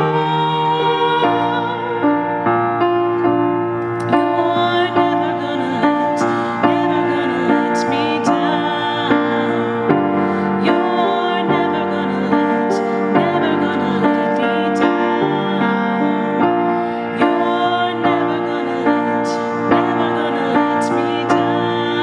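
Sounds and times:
woman singing slow song: 0.0s - 2.5s, 4.0s - 22.0s
piano chords: 0.0s - 22.0s.

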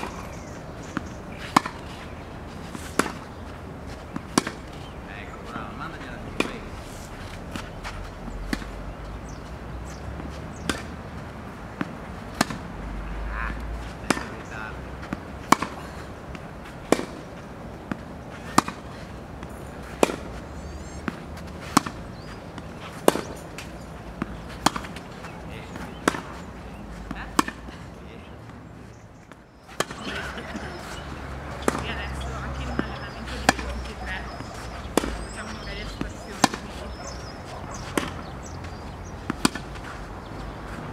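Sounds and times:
tennis racket hitting ball: 0.0s - 4.9s, 8.5s - 8.8s, 10.3s - 11.0s, 11.8s - 12.7s, 13.9s - 14.5s, 15.1s - 20.4s, 21.0s - 27.9s, 29.7s - 40.8s
tennis ball bouncing on court: 0.0s - 6.7s, 7.4s - 28.6s, 29.3s - 40.8s.

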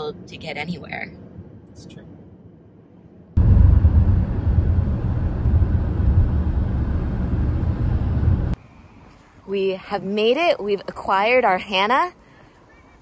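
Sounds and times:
quiet cabin hum: 0.0s - 9.3s
car road and engine rumble: 0.0s - 9.4s.

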